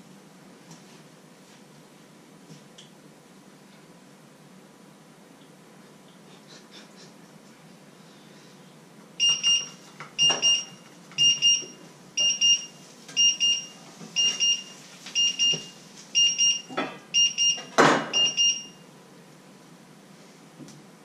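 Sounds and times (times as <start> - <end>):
electronic alarm beeping: 9.2 - 18.8.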